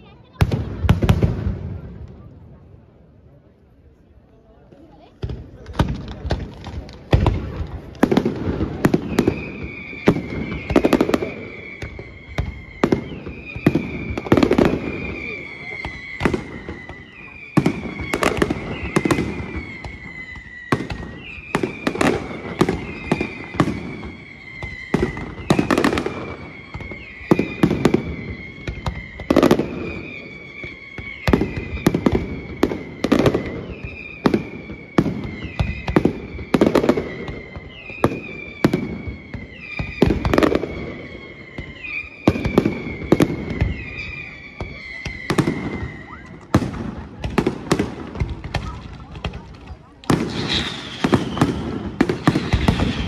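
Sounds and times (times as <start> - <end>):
firework bursts and bangs: 0.0 - 2.8, 4.9 - 53.0
firework crackling: 4.9 - 53.0
firework whistle sliding down: 8.8 - 46.6, 50.1 - 53.0.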